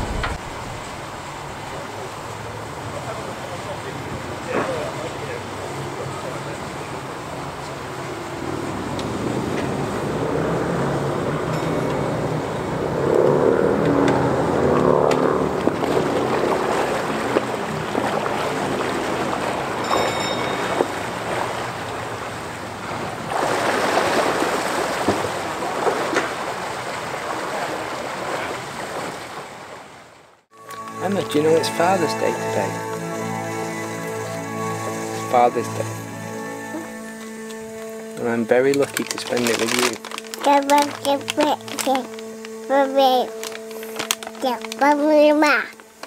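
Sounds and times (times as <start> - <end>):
wind on microphone: 0.0 - 1.5
rushing water wash: 0.0 - 46.0.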